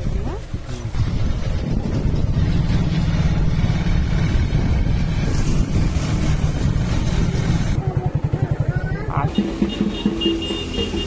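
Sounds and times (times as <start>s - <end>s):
wind rumble on microphone: 0.0s - 7.8s
motorcycle engine: 0.0s - 11.0s.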